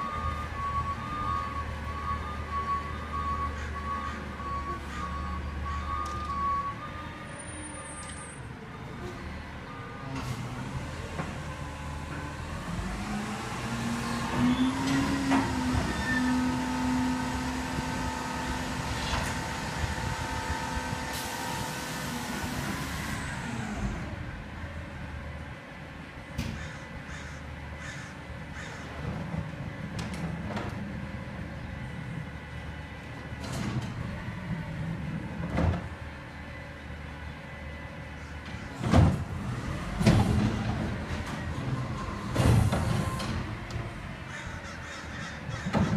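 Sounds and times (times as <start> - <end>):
garbage truck engine and hydraulic drone: 0.0 - 45.9
knocks and clanks: 45.6 - 45.9.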